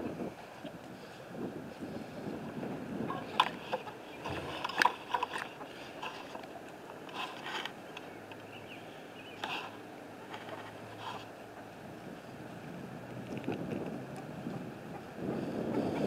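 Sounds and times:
wind on microphone: 0.0 - 6.6, 10.9 - 16.0.

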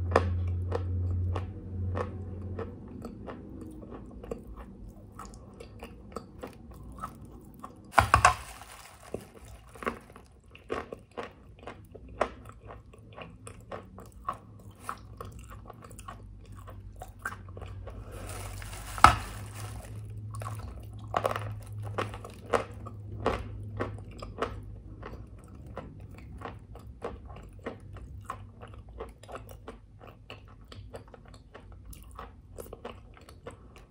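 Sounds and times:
person crunching chalk: 7.9 - 10.3, 18.0 - 20.8.

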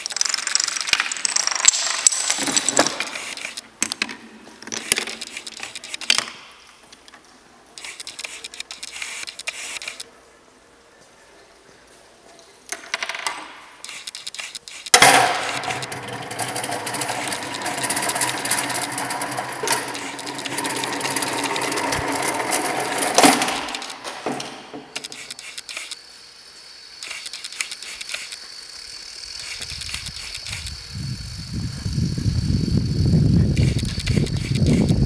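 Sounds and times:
rollers rattling: 0.0 - 6.2, 14.9 - 25.4.

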